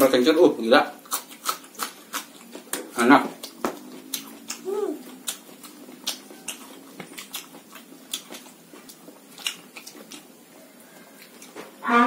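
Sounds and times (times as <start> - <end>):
wet chewing smacks: 1.0 - 10.4
high rising-and-falling vocal sound: 4.6 - 5.1.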